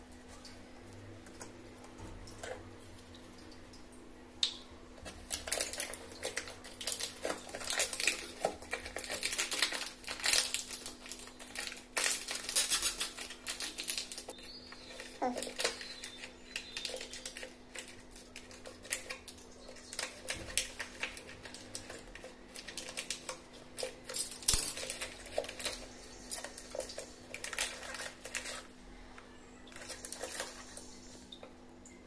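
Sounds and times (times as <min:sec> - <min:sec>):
foil pouch crinkling: 0:05.0 - 0:28.8, 0:29.7 - 0:31.0.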